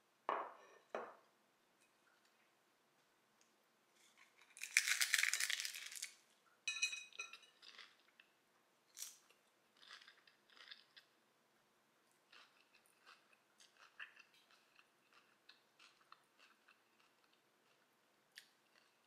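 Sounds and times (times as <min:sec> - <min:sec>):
taco shell crunching: 0:04.3 - 0:06.2
person chewing: 0:07.4 - 0:08.3, 0:09.0 - 0:11.1, 0:12.3 - 0:19.0.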